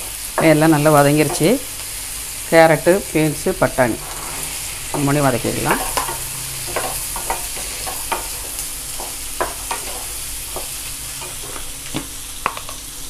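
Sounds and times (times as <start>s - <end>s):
vegetables sizzling in a pan: 0.0s - 13.0s
wooden spatula scraping a pan: 4.0s - 11.8s.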